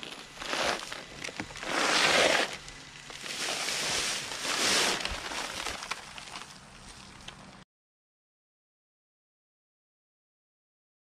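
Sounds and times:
paper sack rustling: 0:00.0 - 0:07.4
dry mix pouring: 0:00.0 - 0:07.6.

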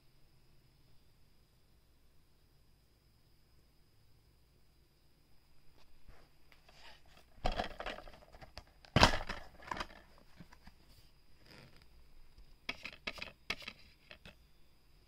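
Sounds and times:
plastic clicks and rattles: 0:07.1 - 0:10.8, 0:11.6 - 0:14.4
plastic case snapping open: 0:07.4 - 0:10.5.

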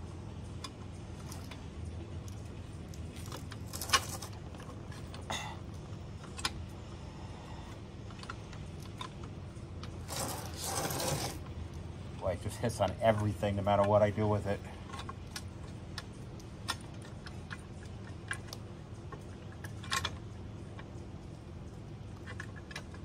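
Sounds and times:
metal clinks and knocks: 0:00.5 - 0:06.6.

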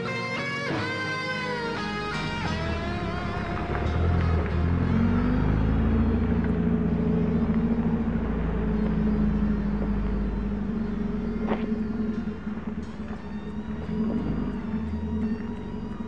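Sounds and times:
car engine and loud exhaust: 0:00.0 - 0:16.0.

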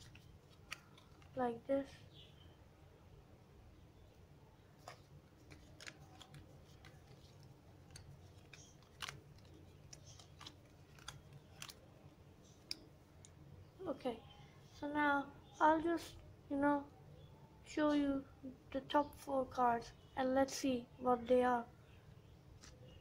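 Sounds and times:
playing cards flicking: 0:00.0 - 0:01.4, 0:04.8 - 0:11.9
faint low hum: 0:00.0 - 0:23.0.

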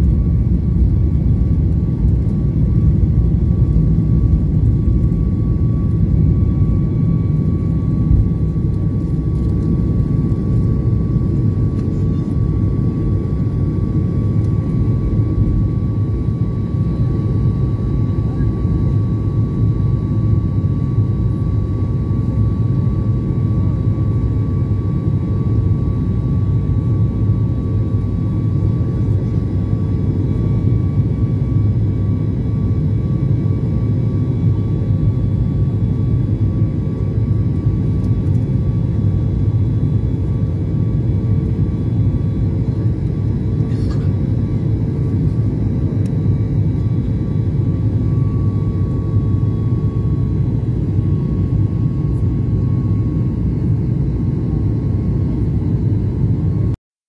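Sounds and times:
jet engine and airflow roar: 0:00.0 - 0:56.8.

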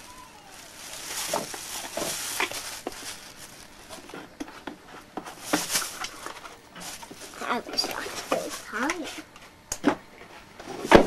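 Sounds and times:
plastic bag rustling: 0:00.0 - 0:09.3.

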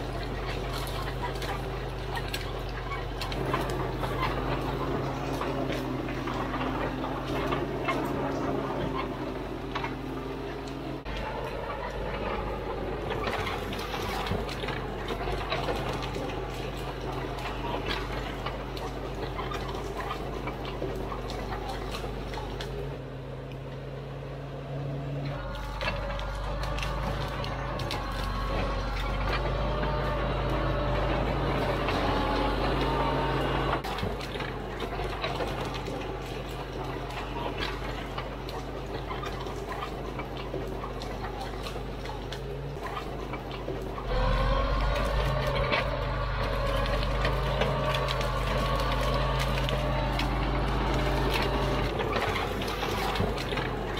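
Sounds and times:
bulldozer diesel engine running: 0:00.0 - 0:53.9
tracks clattering through brush: 0:00.0 - 0:53.9.

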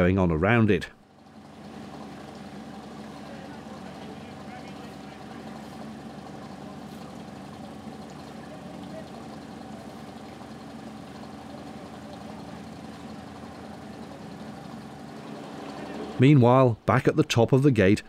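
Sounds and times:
engine idling: 0:00.9 - 0:17.1.

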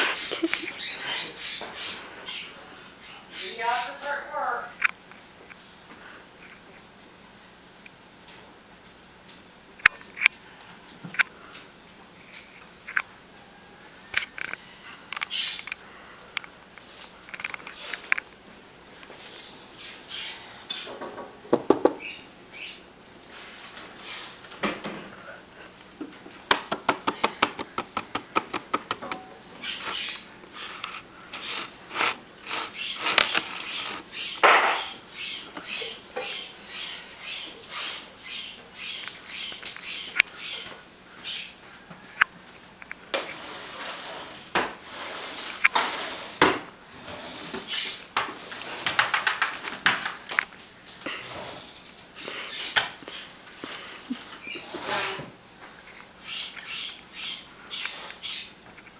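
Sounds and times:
cat paw scraping: 0:29.7 - 0:34.9.

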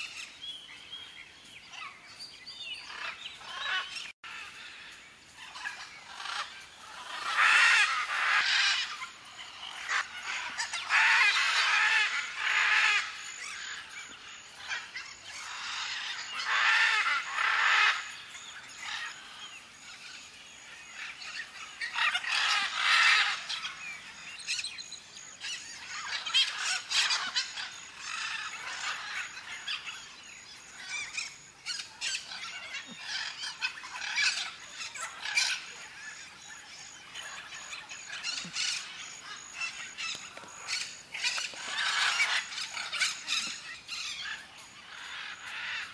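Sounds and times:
faint bird calls: 0:02.8 - 0:45.9
macaws squawking: 0:05.6 - 0:13.7, 0:37.0 - 0:45.9.

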